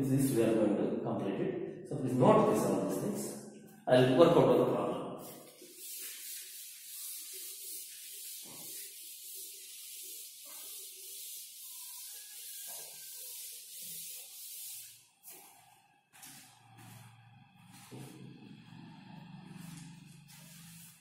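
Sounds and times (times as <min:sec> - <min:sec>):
duster rubbing on chalkboard: 0:05.2 - 0:15.6, 0:19.5 - 0:21.0.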